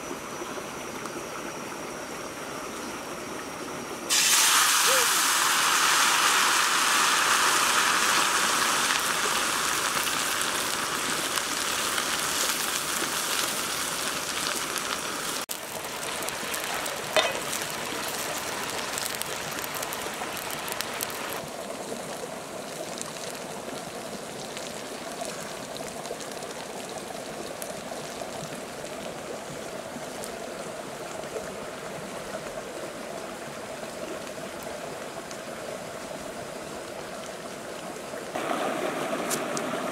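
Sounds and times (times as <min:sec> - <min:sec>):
insects sizzling in a wok: 0:00.2 - 0:28.9.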